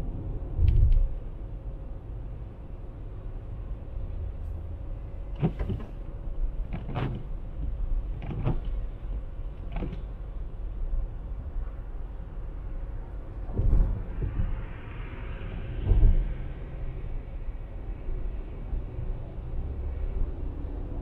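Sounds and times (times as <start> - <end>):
car engine and road rumble: 0.0 - 21.0
rattling clicks in car cabin: 5.3 - 6.0, 6.6 - 10.1.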